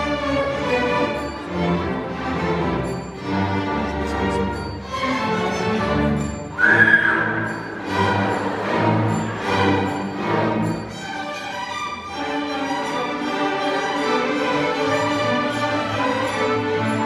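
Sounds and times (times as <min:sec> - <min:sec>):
string orchestra playing: 0:00.0 - 0:17.0.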